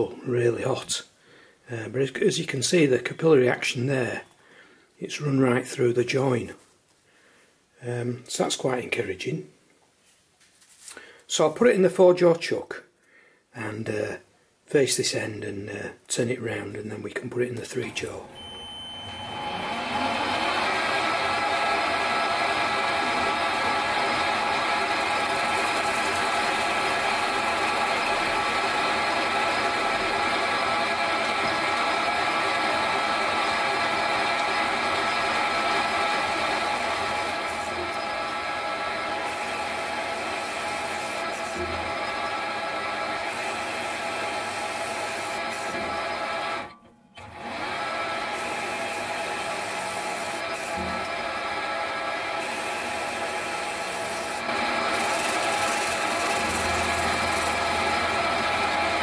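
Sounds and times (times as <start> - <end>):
metal lathe running: 17.8 - 59.0.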